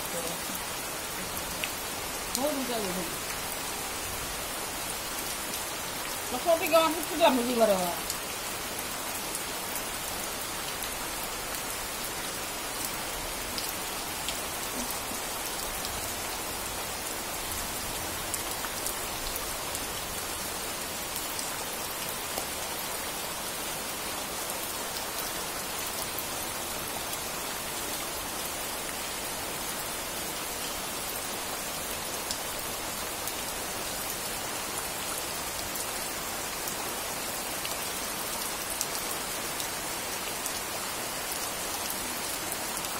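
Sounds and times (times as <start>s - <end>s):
steady rain falling: 0.0s - 42.9s.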